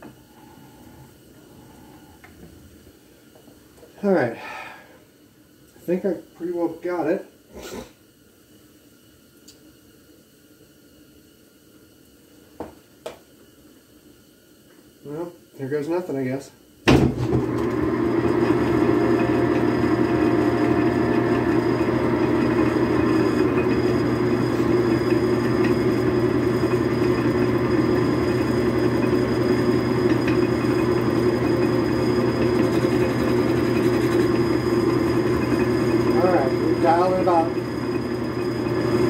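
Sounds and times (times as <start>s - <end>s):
metal lathe humming: 17.3s - 39.0s.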